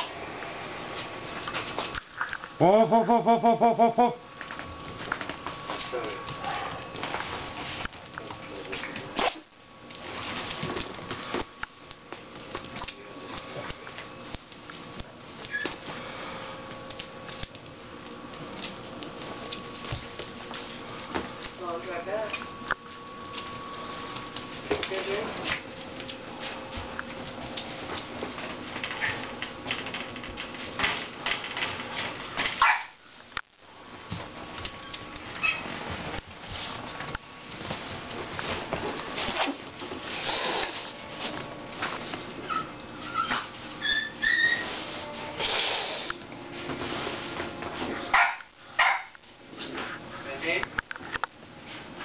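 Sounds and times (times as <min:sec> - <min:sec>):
dog yipping: 0:32.6 - 0:33.0, 0:42.4 - 0:44.8, 0:48.1 - 0:49.1.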